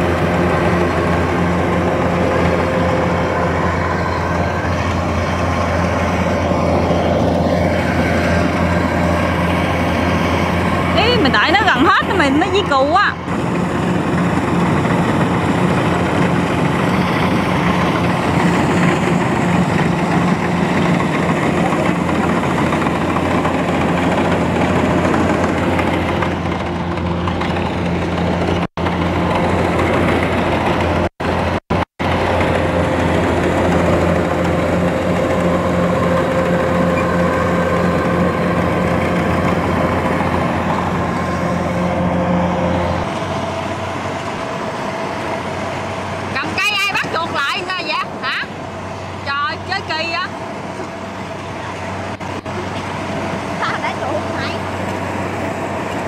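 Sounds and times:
harvester engine running: 0:00.0 - 0:56.0.

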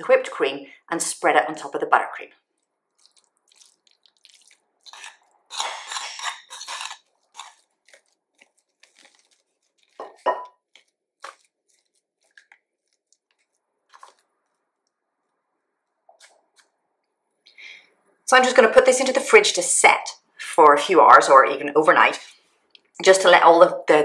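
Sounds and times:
spoon scraping a ceramic bowl: 0:04.9 - 0:07.6
palette knife scraping: 0:04.9 - 0:14.2.

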